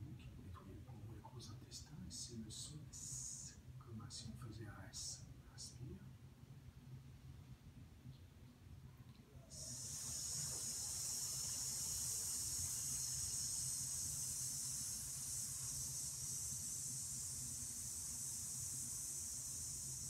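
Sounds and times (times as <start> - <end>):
faint low hum: 0.0 - 20.0
high-pitched hiss: 1.2 - 6.0, 9.5 - 20.0.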